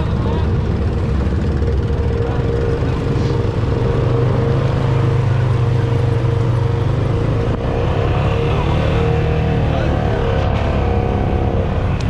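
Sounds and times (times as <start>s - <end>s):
atv engine running at low revs: 0.0s - 12.0s.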